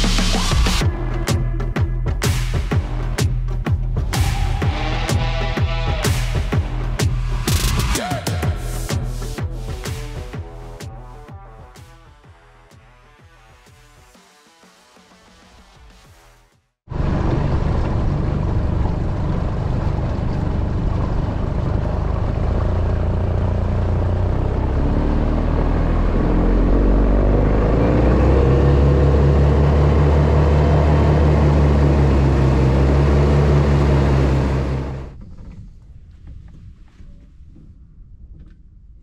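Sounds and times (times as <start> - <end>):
outboard motor running: 16.9 - 35.1.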